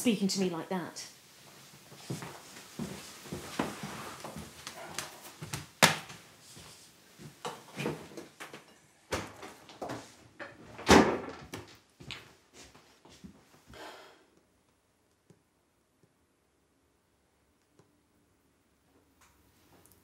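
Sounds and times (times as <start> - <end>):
doors and cupboards opening and shutting: 7.4 - 11.9.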